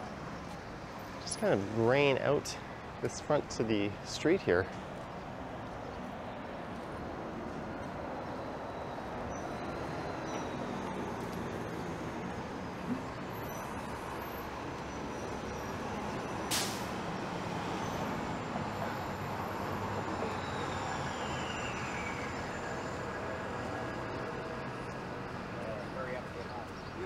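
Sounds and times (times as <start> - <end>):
buses passing: 0.0 - 27.0
city street traffic: 0.0 - 27.0
bus air brakes hissing: 16.4 - 17.2.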